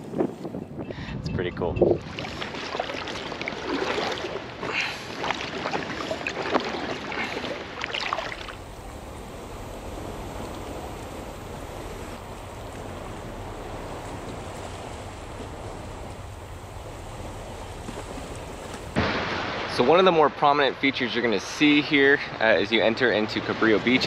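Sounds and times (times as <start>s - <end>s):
paddle strokes splashing: 2.0s - 19.6s
surf washing: 2.0s - 24.0s.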